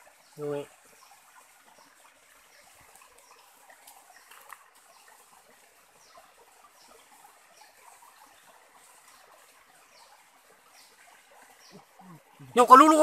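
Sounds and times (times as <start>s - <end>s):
stream trickling over rocks: 0.0s - 13.0s
small ticks and knocks: 2.8s - 5.1s.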